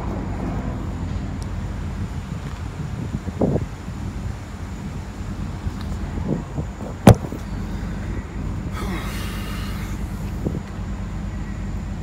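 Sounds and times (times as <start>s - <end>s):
steady low rumble: 0.0s - 12.0s
hiss: 8.8s - 10.6s.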